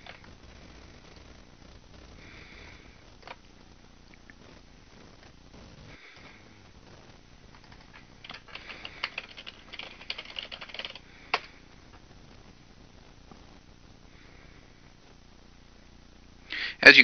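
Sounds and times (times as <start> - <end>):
typing on computer keyboard: 7.5 - 11.5.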